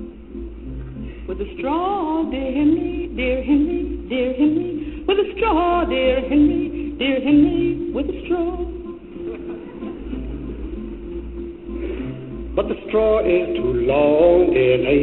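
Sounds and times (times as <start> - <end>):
musical accompaniment: 0.0 - 15.0
person singing: 1.0 - 9.8, 12.5 - 15.0.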